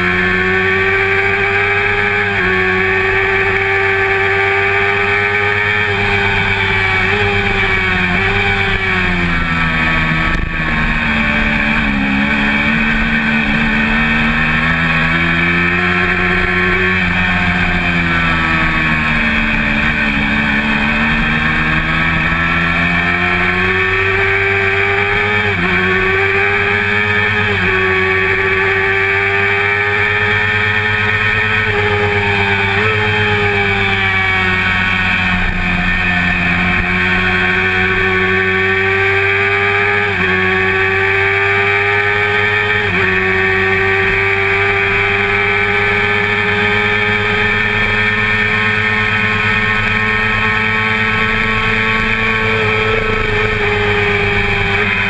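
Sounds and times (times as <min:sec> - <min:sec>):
motorcycle engine at high revs: 0:00.0 - 0:55.0.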